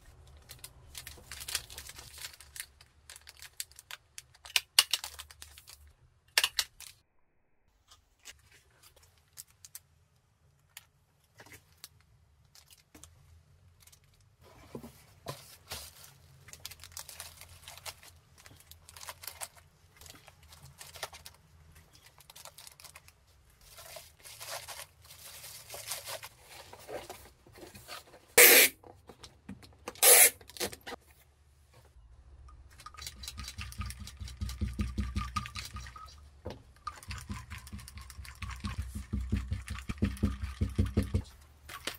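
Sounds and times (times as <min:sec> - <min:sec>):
plastic and bubble wrap rustling: 0:00.0 - 0:05.9, 0:11.4 - 0:28.7
loud tearing sounds: 0:30.0 - 0:30.7.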